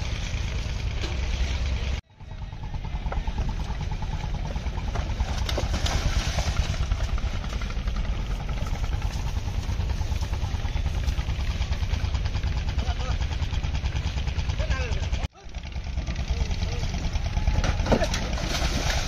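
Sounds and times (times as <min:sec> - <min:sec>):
engine rumble: 0:00.0 - 0:19.0
outdoor noise: 0:00.0 - 0:19.0.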